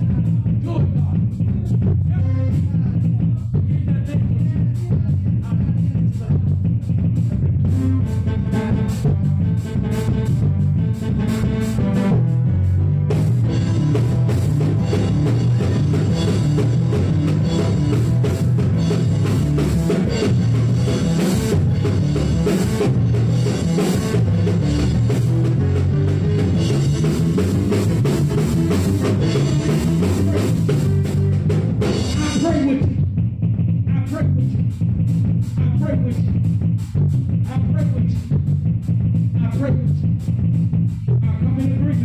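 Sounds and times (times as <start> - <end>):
bass notes: 0.0 - 42.0
drum kit beat: 0.0 - 42.0
live band music: 0.0 - 42.0.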